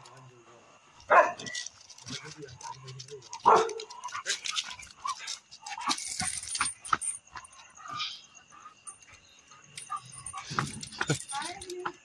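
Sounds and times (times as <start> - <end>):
dog barking: 1.1 - 1.6, 3.4 - 4.1
clicks and scuffs: 1.3 - 7.6.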